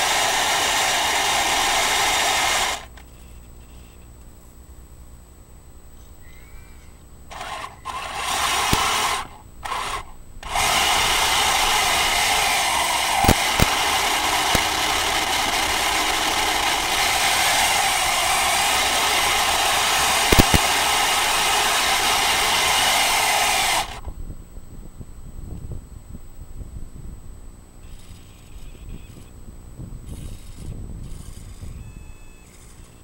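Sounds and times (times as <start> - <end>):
toy tank tracks grinding: 0.0 - 3.0, 7.3 - 24.0.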